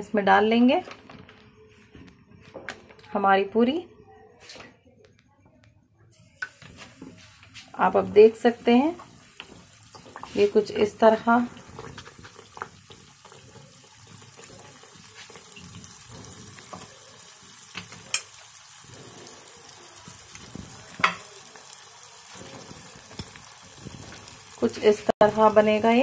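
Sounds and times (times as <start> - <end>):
dough deep-frying in bubbling oil: 6.5 - 26.0.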